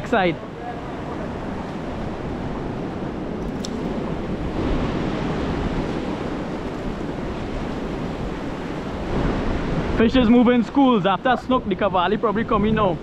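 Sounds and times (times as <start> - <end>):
surf washing onto beach: 0.0 - 11.2
wind on microphone: 0.0 - 13.0.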